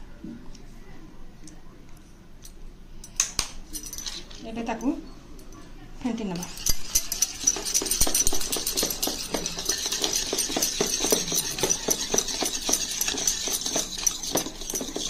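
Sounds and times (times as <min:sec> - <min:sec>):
whisk beating cream in metal bowl: 0:06.4 - 0:15.0.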